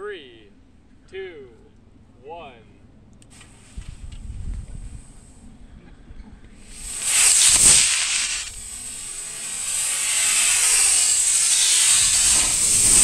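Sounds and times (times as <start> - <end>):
rocket motor rushing hiss: 3.3 - 5.6, 6.5 - 13.0.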